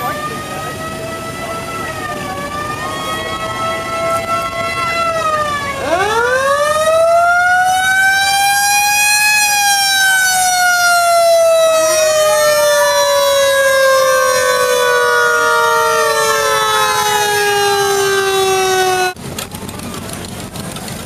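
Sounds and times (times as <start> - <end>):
siren wailing: 0.0 - 19.2
second siren winding up: 5.2 - 19.2.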